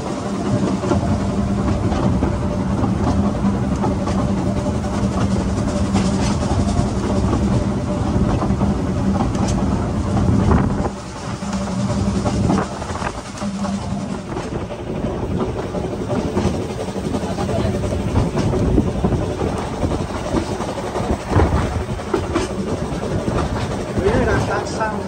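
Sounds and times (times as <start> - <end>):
train wheels rumbling on rail: 0.0 - 25.0.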